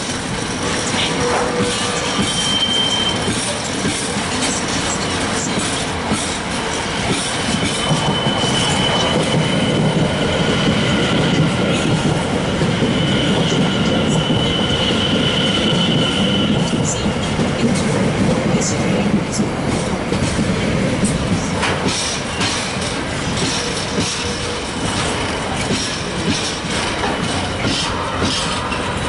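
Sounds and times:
electric passenger train passing: 0.0s - 29.0s
high wheel squeal: 0.9s - 3.7s, 7.5s - 11.2s, 12.8s - 17.0s
freight wagons rumbling: 16.8s - 29.0s.

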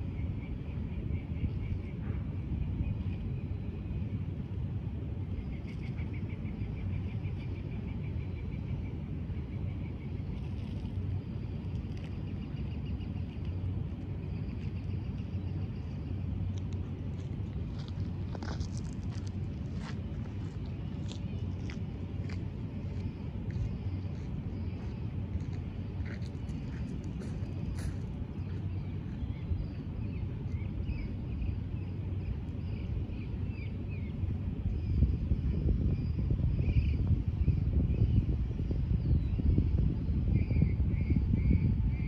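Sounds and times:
low rumble of distant vehicles: 0.0s - 42.0s.

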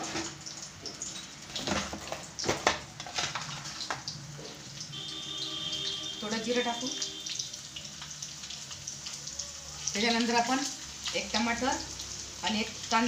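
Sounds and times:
garlic sizzling in hot oil: 0.0s - 13.0s.

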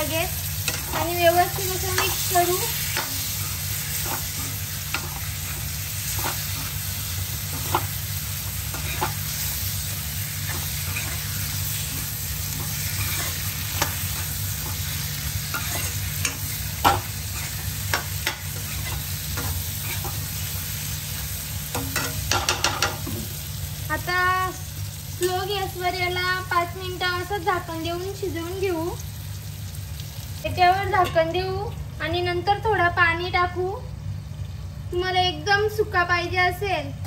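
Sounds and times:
food sizzling in a pan: 0.0s - 36.2s
spoon scraping and knocking pan: 10.4s - 20.2s, 21.7s - 23.3s.

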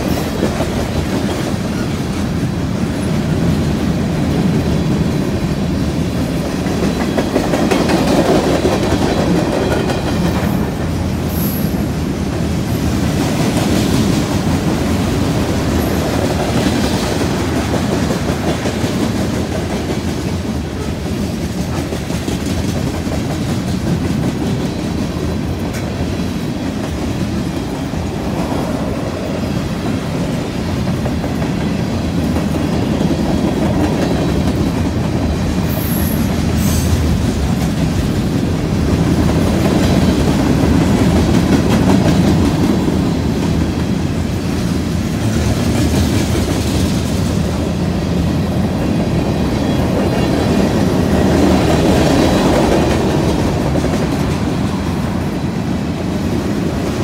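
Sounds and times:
freight train cars rolling past: 0.0s - 57.0s.

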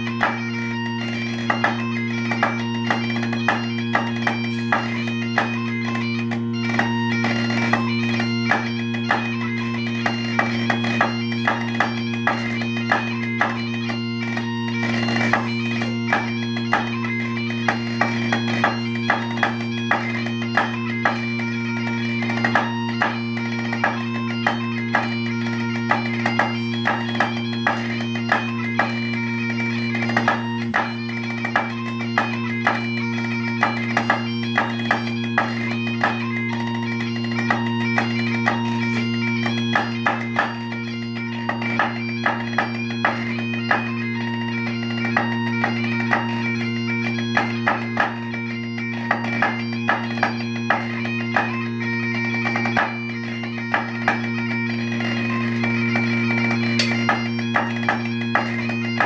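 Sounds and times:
bagpipe playing a tune: 0.0s - 59.0s
drumsticks on a practice pad: 56.8s - 57.7s.

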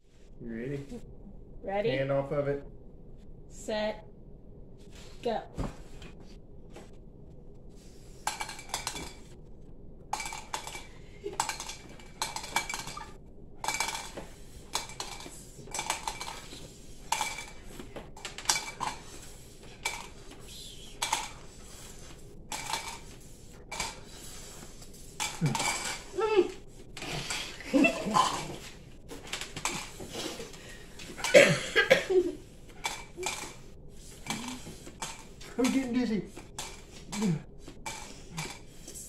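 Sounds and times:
candies clicking into cups: 8.3s - 9.4s, 10.1s - 31.5s, 32.4s - 39.0s.

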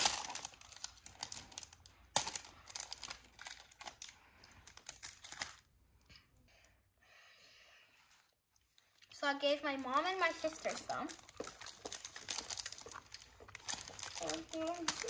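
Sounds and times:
wrapper crinkling: 0.0s - 5.7s, 8.8s - 15.0s.

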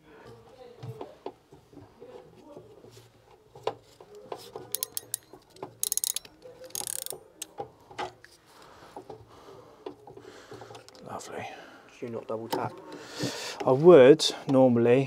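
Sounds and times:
ratchet tool clicking: 4.7s - 7.5s.

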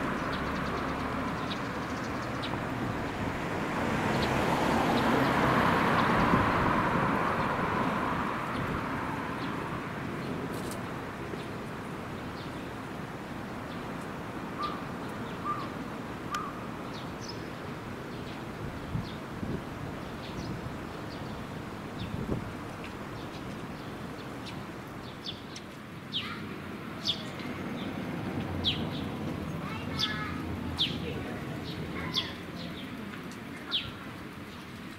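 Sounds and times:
vehicle passing: 0.0s - 15.0s, 26.1s - 34.6s
bird chirping: 14.6s - 18.4s.

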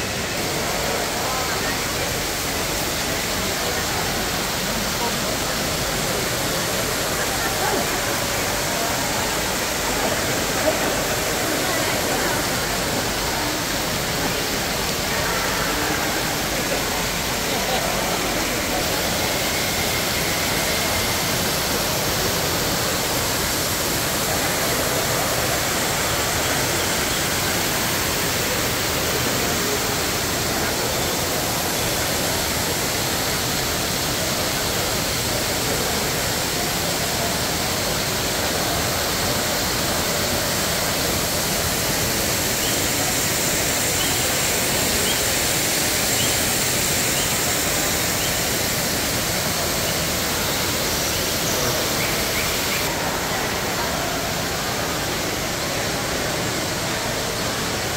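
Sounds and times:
fountain water falling: 0.0s - 57.9s.

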